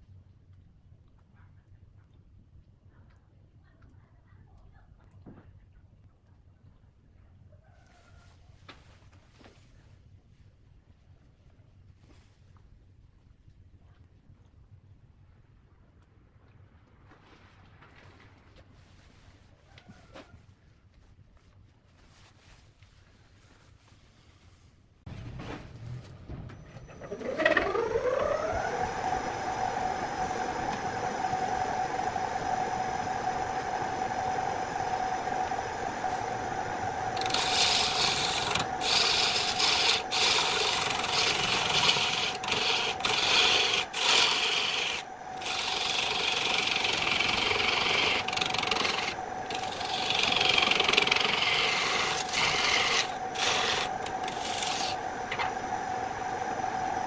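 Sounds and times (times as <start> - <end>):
turning tool scraping wood: 26.7 - 57.0
wood lathe whine: 26.7 - 57.0.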